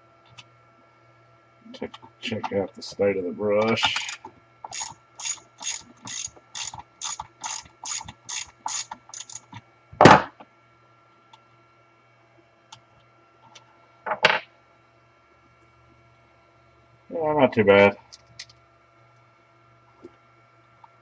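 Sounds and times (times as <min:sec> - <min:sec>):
ratchet clicking: 0:04.1 - 0:09.6.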